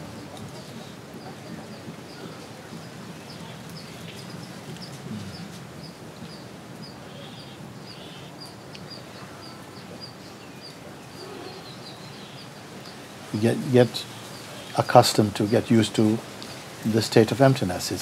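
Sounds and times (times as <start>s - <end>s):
bird chirping: 3.2s - 16.0s.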